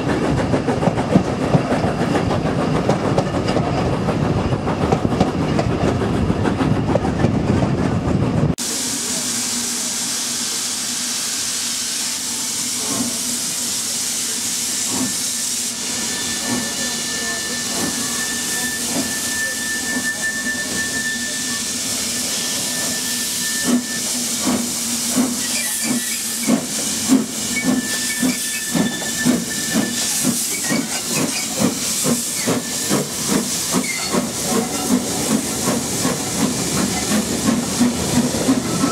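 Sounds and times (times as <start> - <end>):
train carriage rumbling: 0.0 - 10.7, 12.2 - 38.9
steam hissing: 8.6 - 38.9
steam locomotive exhaust beats: 8.6 - 38.9.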